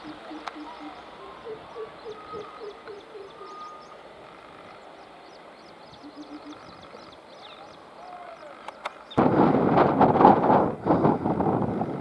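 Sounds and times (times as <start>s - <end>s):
bird hooting: 0.0s - 8.8s
small birds chirping: 0.0s - 9.2s.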